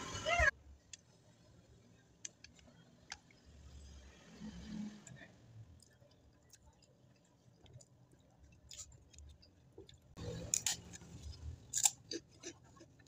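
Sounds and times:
mouth chewing: 8.7s - 13.0s
crunching crisp cracker: 10.5s - 13.0s.

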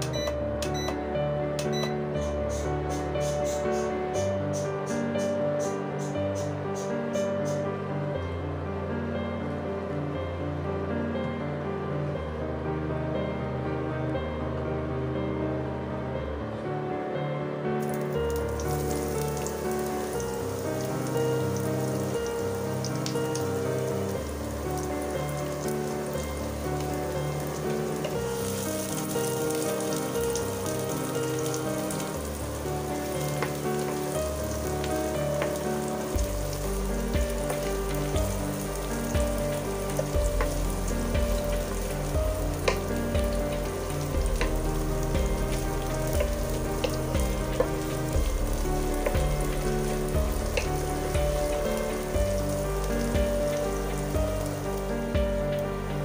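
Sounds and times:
background music with bass: 0.0s - 56.0s
onions sizzling in oil: 17.8s - 55.8s.

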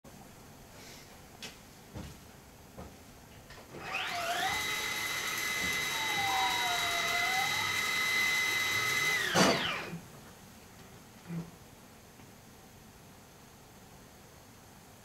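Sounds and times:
sliding door motor whine: 3.7s - 10.0s.

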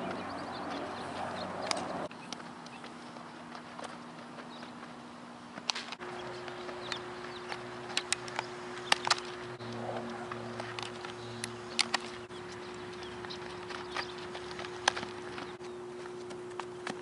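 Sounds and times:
steady low hum: 0.0s - 17.0s
cleats scuffing on dirt: 2.0s - 8.2s, 12.0s - 17.0s.

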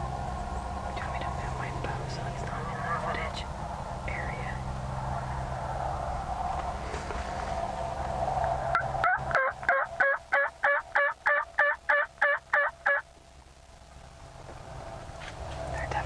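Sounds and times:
wild turkey yelping: 8.7s - 13.0s.

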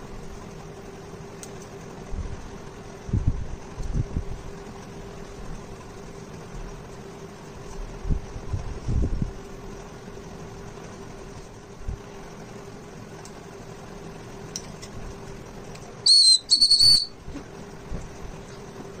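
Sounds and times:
toy whistle blasts: 16.0s - 17.2s.

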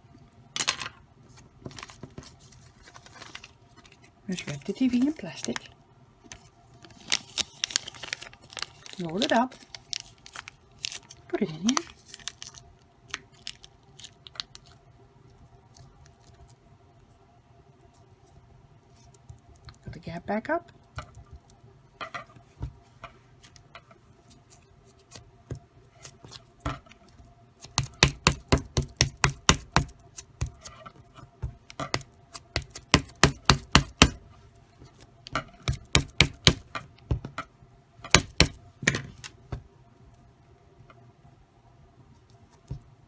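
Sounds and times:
hands patting modeling clay: 27.6s - 34.2s, 35.4s - 37.4s, 38.1s - 39.7s.

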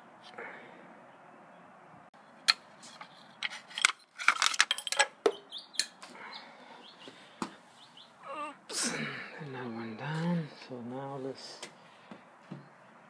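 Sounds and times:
metal parts clinking: 2.5s - 6.0s.

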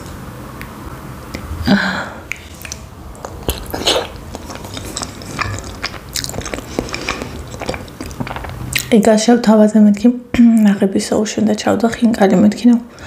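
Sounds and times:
wet mouth clicks: 2.3s - 8.9s
dumplings being bitten and chewed: 2.4s - 8.9s.

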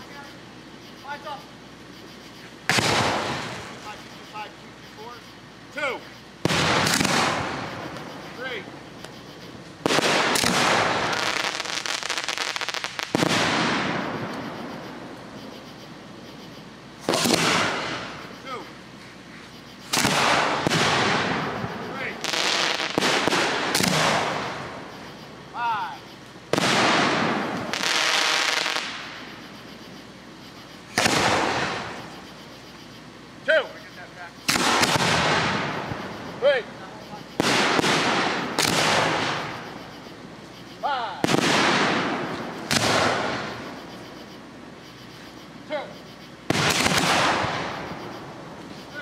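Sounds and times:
firework bangs: 2.2s - 4.6s, 6.4s - 32.8s, 34.4s - 45.3s, 46.3s - 49.0s
crackling firework pops: 2.7s - 3.9s, 6.4s - 8.1s, 9.0s - 14.5s, 17.0s - 18.1s, 19.9s - 21.5s, 22.2s - 24.6s, 26.2s - 29.2s, 30.9s - 32.1s, 34.5s - 36.0s, 37.4s - 39.7s, 41.2s - 43.6s, 46.5s - 48.0s.

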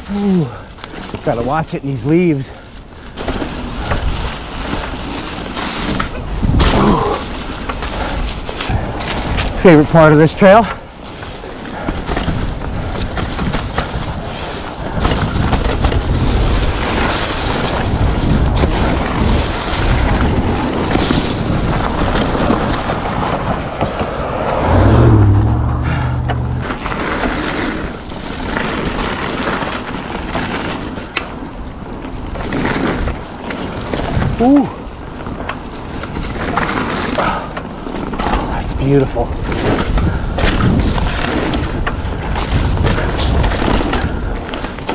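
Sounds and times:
bike rolling on dirt trail: 0.0s - 44.9s
wind buffeting microphone: 10.8s - 27.1s, 33.0s - 44.9s
low hum: 23.7s - 26.8s.

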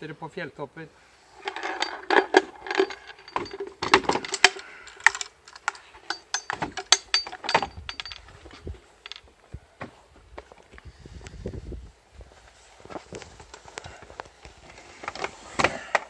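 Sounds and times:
buckles clicking: 1.4s - 9.3s.

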